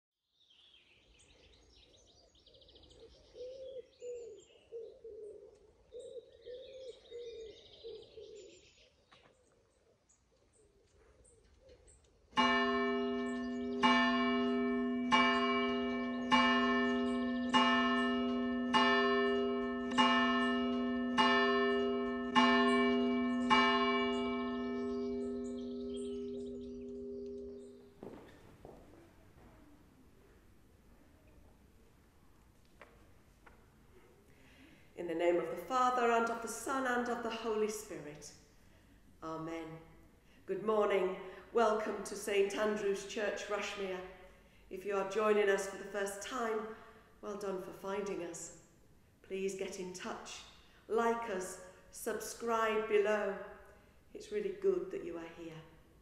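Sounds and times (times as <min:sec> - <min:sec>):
birds chirping: 0:00.5 - 0:28.4
bird cooing: 0:02.5 - 0:08.8
church bell tolling: 0:12.4 - 0:28.2.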